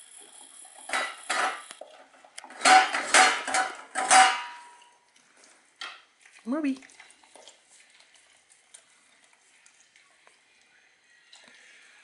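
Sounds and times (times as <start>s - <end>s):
metal bowl clanking: 0.8s - 5.0s
dog licking metal bowl: 6.2s - 10.0s.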